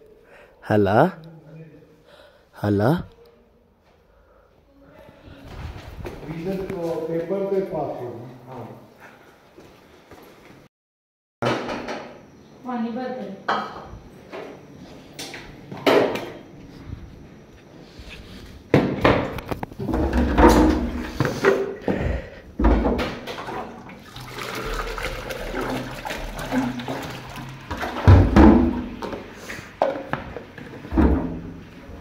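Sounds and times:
knocks and thumps on tiled floor: 0:18.7 - 0:23.6, 0:27.7 - 0:31.6
water pouring into plastic jug: 0:23.9 - 0:28.0.

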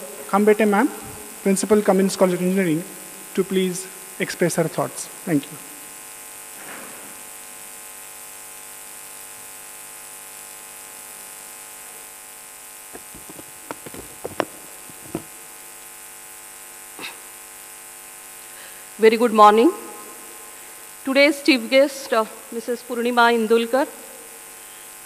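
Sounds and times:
public address hum and hiss: 0:00.0 - 0:16.0, 0:18.3 - 0:25.0
microphone knocks and taps: 0:12.9 - 0:15.3.

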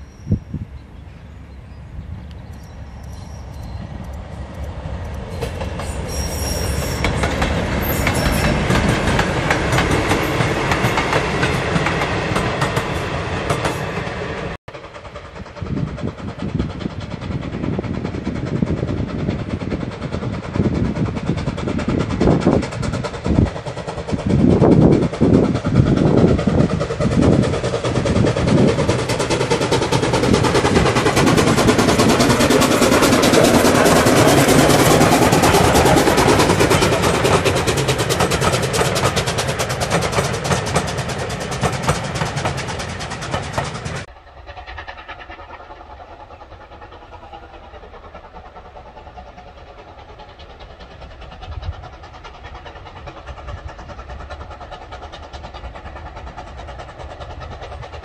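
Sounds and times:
steam locomotive chuffing: 0:00.0 - 0:58.0
train running past: 0:00.0 - 0:58.0.

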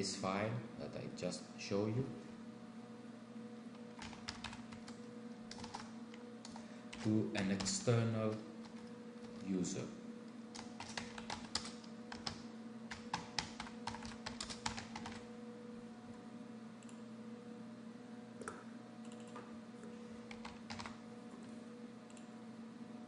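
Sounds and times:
typing on a computer keyboard: 0:04.0 - 0:05.9, 0:10.6 - 0:15.2, 0:20.3 - 0:21.0.

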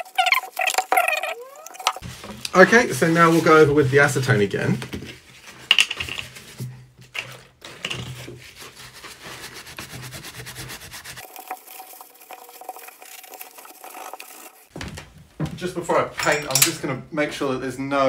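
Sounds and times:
paper crinkling and wiping: 0:08.1 - 0:14.7.

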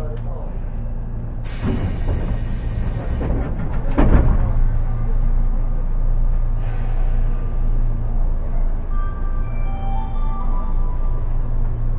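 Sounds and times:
train interior rumble: 0:00.0 - 0:11.9
sharp clacks of train wheels: 0:01.5 - 0:04.7.

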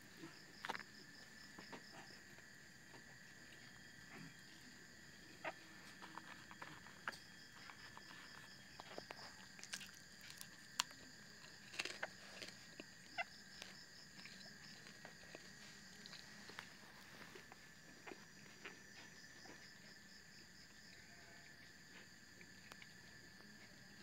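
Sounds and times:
cricket fast pulsing trill: 0:00.0 - 0:24.0
crickets chirping: 0:00.0 - 0:24.0.

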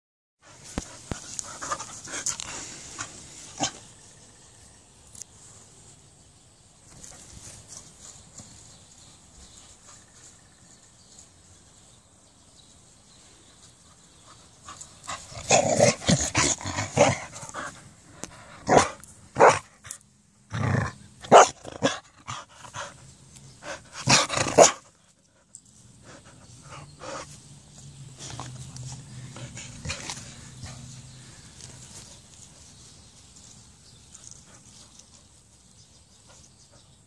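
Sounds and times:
dog barking: 0:18.7 - 0:19.6, 0:21.3 - 0:22.0, 0:24.1 - 0:24.8.

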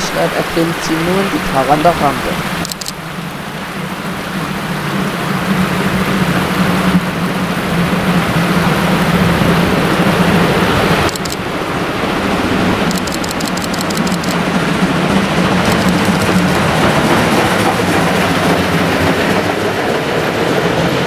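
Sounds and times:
river water rushing: 0:00.0 - 0:21.0
steam locomotive working hard: 0:08.0 - 0:21.0.

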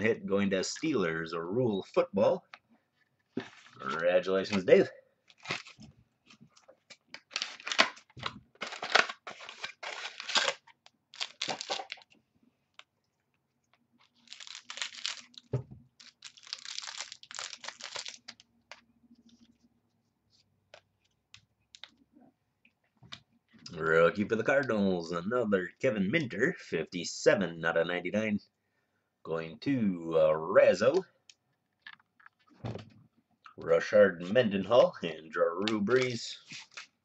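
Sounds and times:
foil wrapper tearing and crinkling: 0:05.4 - 0:05.8, 0:07.2 - 0:12.0, 0:14.1 - 0:18.4.

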